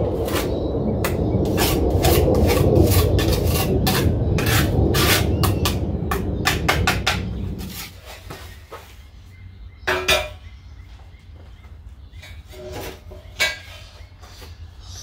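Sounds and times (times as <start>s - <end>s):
low steady rumble: 0.0s - 8.3s
trowel scraping wet mortar: 0.2s - 5.6s.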